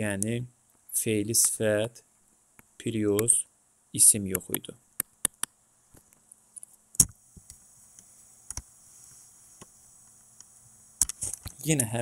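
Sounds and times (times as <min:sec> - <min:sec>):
faint steady hum and hiss: 0:00.0 - 0:12.0
sharp clicks: 0:04.3 - 0:06.3.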